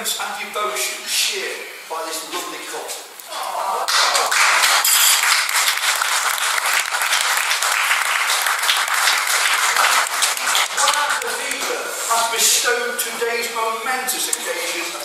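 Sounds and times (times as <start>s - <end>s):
crowd applauding: 3.5s - 11.7s.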